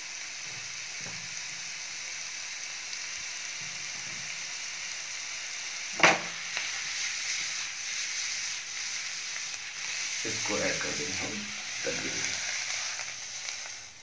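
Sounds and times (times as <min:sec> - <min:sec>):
vegetables sizzling in a frying pan: 0:00.0 - 0:14.0
pan clank: 0:06.0 - 0:06.4
vegetables rustling in tossed pan: 0:06.0 - 0:13.9.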